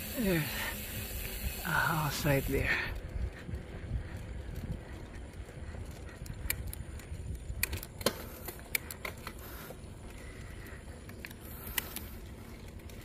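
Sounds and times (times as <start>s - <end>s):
low wind rumble on microphone: 0.0s - 13.0s
sharp clicks and light knocks: 6.3s - 10.2s.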